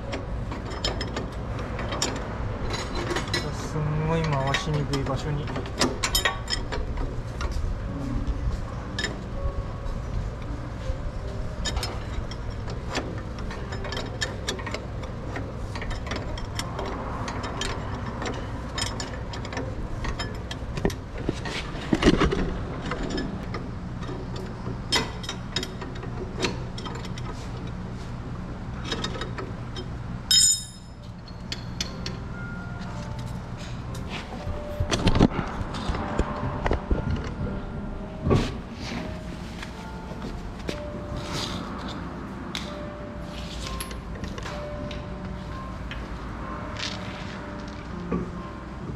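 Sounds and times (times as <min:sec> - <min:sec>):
metallic clicks and knocks: 0:00.0 - 0:07.6.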